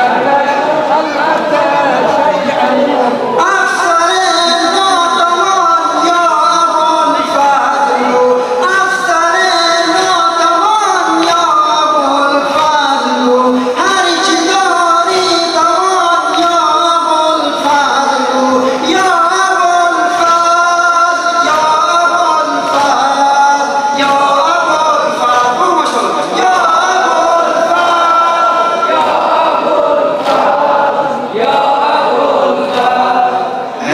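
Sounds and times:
man singing a lament into a microphone: 0.0 - 33.9.

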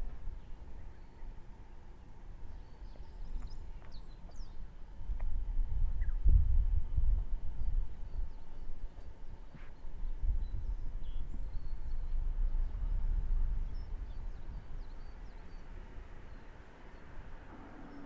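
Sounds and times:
wind buffeting microphone: 0.0 - 18.0
faint bird chirps: 13.7 - 18.0.

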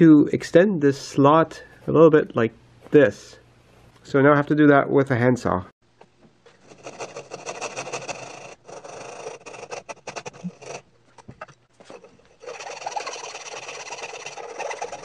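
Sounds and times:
coping saw cutting plywood: 6.7 - 10.9, 11.8 - 15.0.

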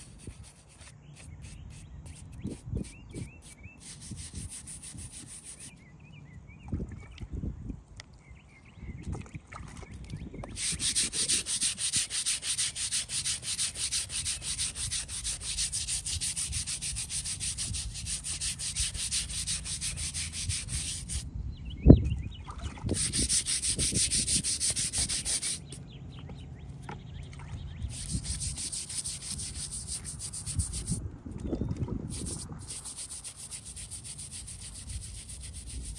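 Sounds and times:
brush scrubbing stone: 0.0 - 5.8, 10.6 - 21.2, 22.9 - 25.8, 27.9 - 31.0, 32.1 - 35.9.

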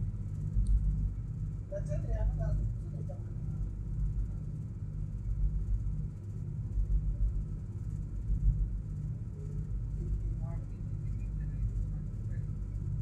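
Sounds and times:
boat engine low rumble: 0.0 - 13.0.

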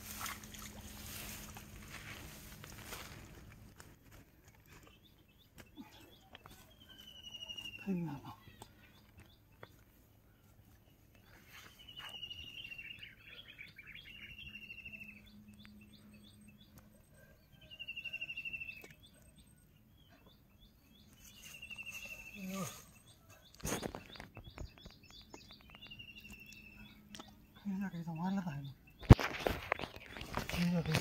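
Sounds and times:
high bird chirps: 6.2 - 9.4, 11.2 - 16.8, 17.6 - 27.4.

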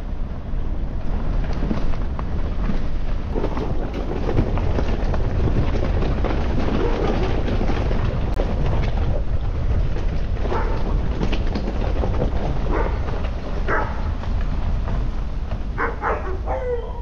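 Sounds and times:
vehicle rumble: 0.0 - 17.0
wind buffeting microphone: 0.0 - 17.0
dog barking: 10.5 - 10.8, 12.7 - 13.0, 13.7 - 14.0, 15.8 - 17.0.

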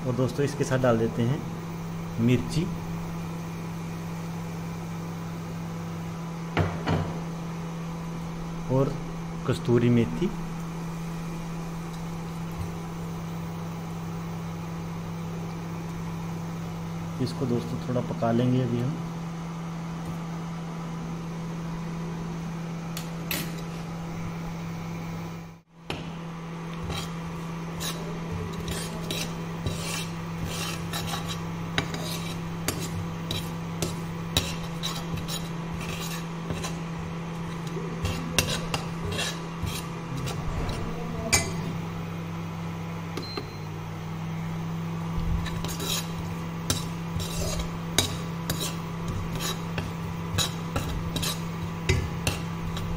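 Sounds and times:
steady low hum: 0.0 - 52.9
steel ladle scraping a pan: 26.8 - 36.8, 37.4 - 41.5, 45.4 - 52.9.

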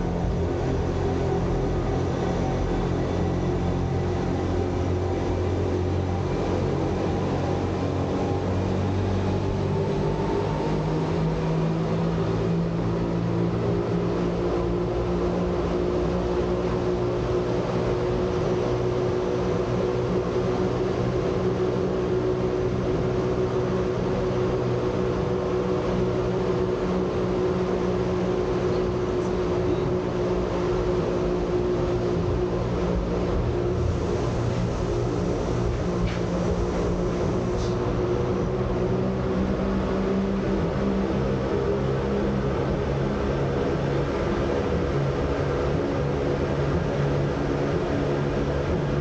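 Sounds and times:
rack railway train running: 28.5 - 40.6.

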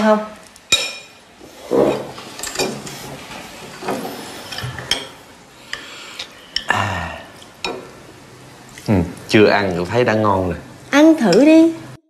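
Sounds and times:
ceramic bowls and chopsticks clinking: 4.4 - 5.2.

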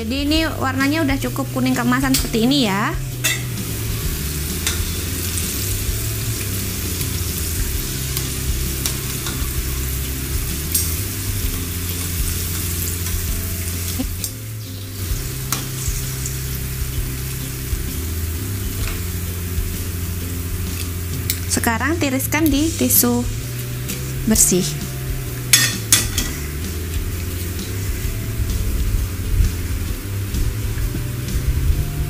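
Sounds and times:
deep-frying sizzle in oil: 0.0 - 32.0
metal tongs clicking on a pan: 3.2 - 3.6, 4.6 - 5.0, 8.2 - 9.5, 10.7 - 11.0, 25.5 - 26.4.

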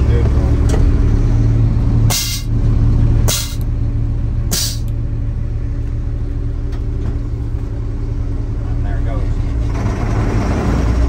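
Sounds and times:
truck diesel engine idling: 0.0 - 11.0
air hissing: 2.1 - 2.6, 3.3 - 3.7, 4.5 - 5.0.

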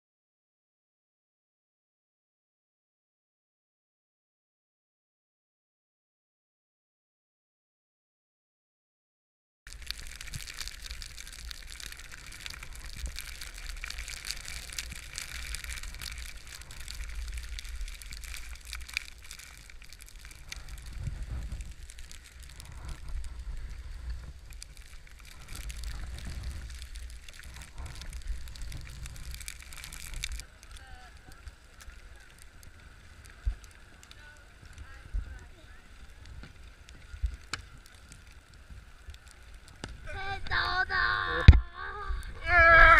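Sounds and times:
skis scraping over snow: 9.7 - 40.4
wind rumble on microphone: 9.7 - 42.9.

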